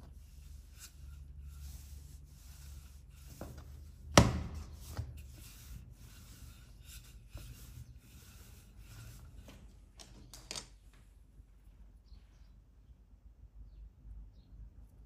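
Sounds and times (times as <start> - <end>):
hands rubbing on kitchen surface: 0.0 - 9.7.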